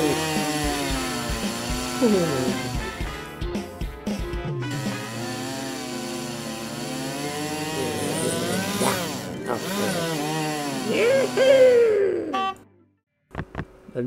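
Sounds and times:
buzzing small motor drone: 0.0s - 3.1s, 4.6s - 12.6s.

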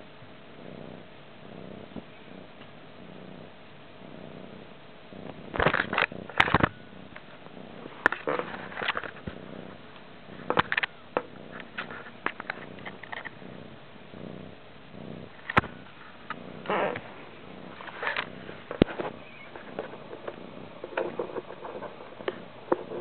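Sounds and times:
cat purring: 0.0s - 23.0s
paws knocking on camera: 17.8s - 23.0s.

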